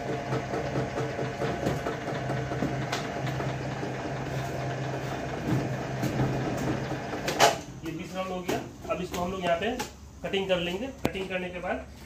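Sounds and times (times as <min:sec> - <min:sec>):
machine motor hum: 0:00.0 - 0:07.4.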